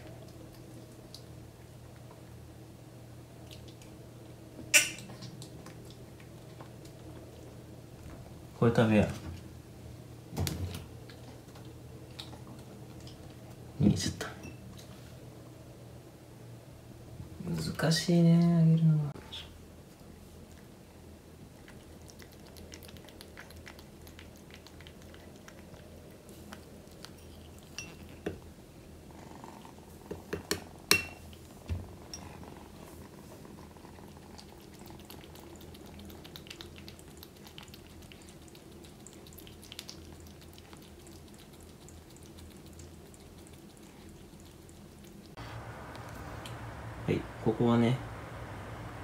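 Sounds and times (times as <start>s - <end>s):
kitten licking and smacking: 0.0s - 2.4s, 3.4s - 4.4s, 5.1s - 7.8s, 10.8s - 13.6s, 19.9s - 28.6s, 32.2s - 47.0s.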